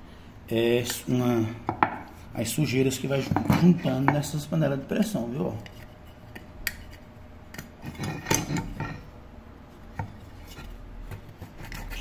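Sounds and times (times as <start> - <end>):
needle scraping metal lid: 10.2 - 12.0.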